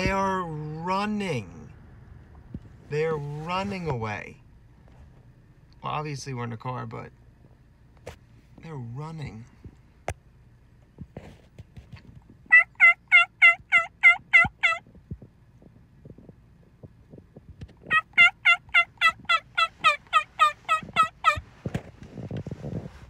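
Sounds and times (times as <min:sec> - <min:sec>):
turkey yelping: 0:12.5 - 0:14.8, 0:17.9 - 0:21.5.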